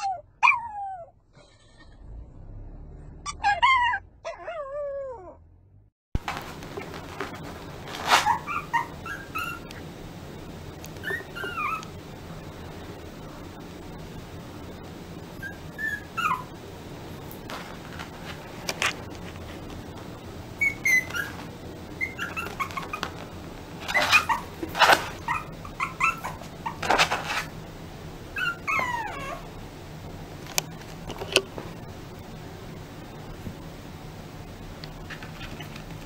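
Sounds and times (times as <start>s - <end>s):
puppy whining and yipping: 0.0s - 1.2s, 3.2s - 5.4s, 8.0s - 9.8s, 11.0s - 12.0s, 15.4s - 16.6s, 20.6s - 23.2s, 23.8s - 27.5s, 28.4s - 29.5s.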